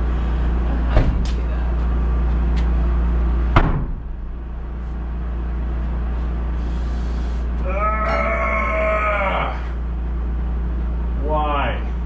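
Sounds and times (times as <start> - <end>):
steady low hum: 0.0 - 12.0
door thumping shut: 3.5 - 4.3.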